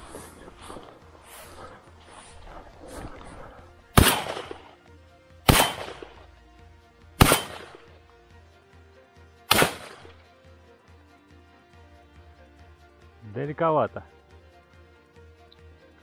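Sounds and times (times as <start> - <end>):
faint background music: 0.0 - 16.0
shotgun shots with echo: 4.0 - 4.8, 5.4 - 6.2, 7.2 - 7.9, 9.5 - 10.2.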